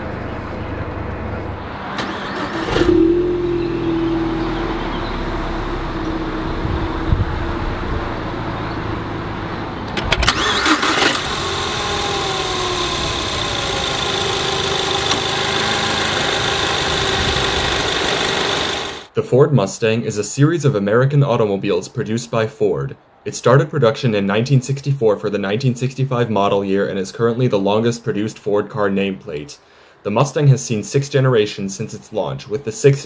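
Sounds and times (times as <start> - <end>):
car engine starting and idling: 0.0 - 19.1
engine whine: 0.0 - 19.1.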